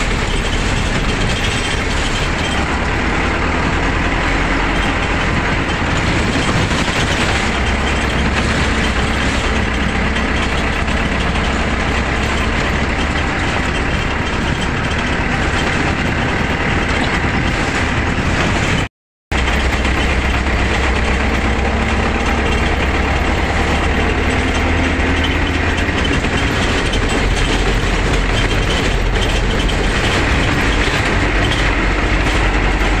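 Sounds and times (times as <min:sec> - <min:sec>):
bus engine drone: 0:00.0 - 0:33.0
road noise: 0:00.0 - 0:33.0.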